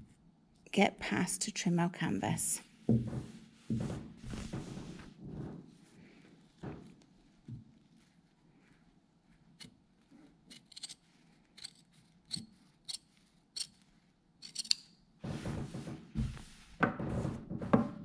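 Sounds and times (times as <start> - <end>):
cloth rustling: 2.6 - 10.4, 15.2 - 18.0
soft thumps on table: 2.9 - 5.6.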